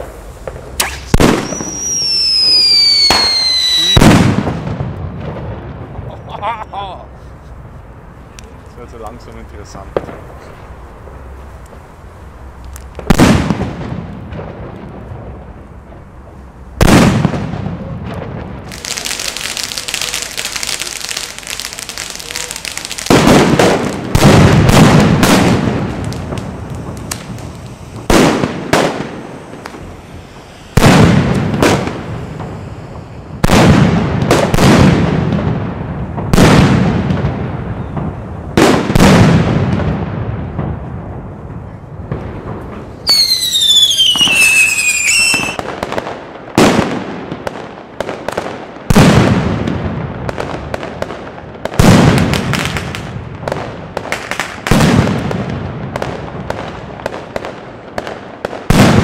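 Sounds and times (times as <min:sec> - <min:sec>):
steady hissing: 0:00.0 - 0:01.2, 0:18.6 - 0:23.1, 0:25.0 - 0:34.5
firecracker bangs echoing: 0:00.0 - 0:06.4, 0:12.6 - 0:16.1, 0:16.7 - 0:59.0.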